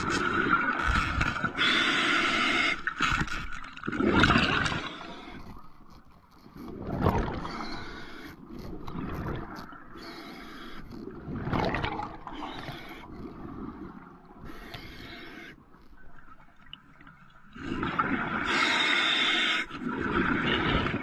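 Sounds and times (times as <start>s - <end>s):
air bubbles gurgling underwater: 3.8s - 4.9s, 6.7s - 7.5s, 11.1s - 12.4s.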